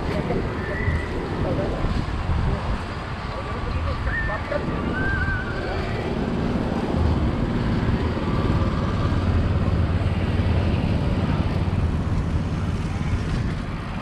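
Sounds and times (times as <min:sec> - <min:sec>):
street and seaside ambience: 0:00.0 - 0:14.0.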